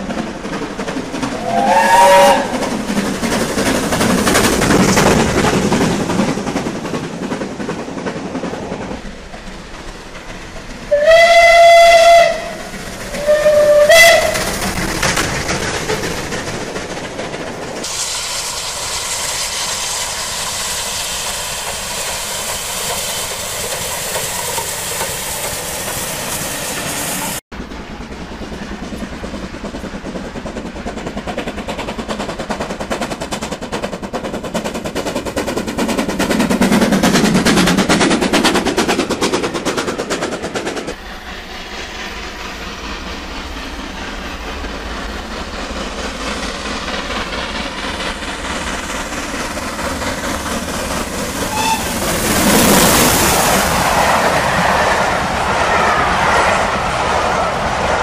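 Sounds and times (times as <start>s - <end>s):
steam locomotive exhaust beats: 0.0s - 58.0s.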